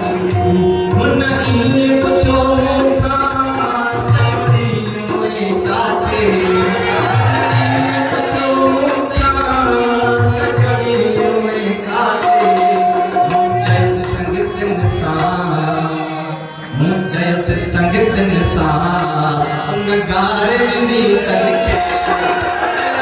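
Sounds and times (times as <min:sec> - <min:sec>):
harmonium: 0:00.0 - 0:23.0
man singing into a microphone: 0:00.0 - 0:23.0
hand drum beat: 0:20.1 - 0:23.0.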